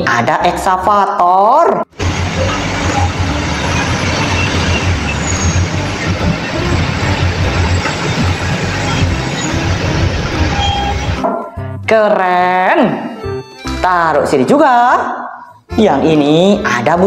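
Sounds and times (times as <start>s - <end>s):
excavator diesel engine rumbling: 1.9s - 11.2s.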